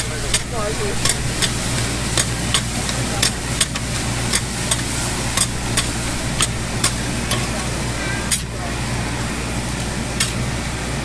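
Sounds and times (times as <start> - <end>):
low steady hum: 0.0 - 11.0
steady sizzle: 0.0 - 11.0
metal spatulas clacking on griddle: 0.3 - 7.7, 8.3 - 8.5.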